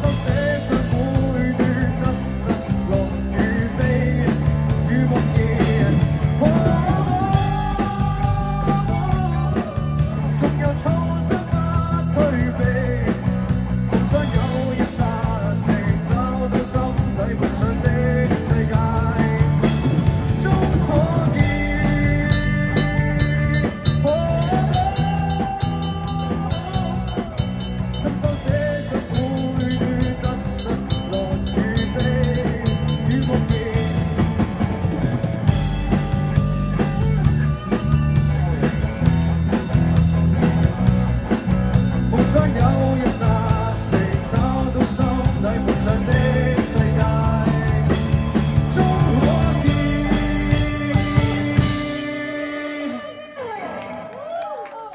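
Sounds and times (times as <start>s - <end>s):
drum kit: 0.0s - 53.1s
bass guitar: 0.0s - 54.5s
electric guitars: 0.0s - 54.9s
bending melodic line: 21.2s - 43.0s.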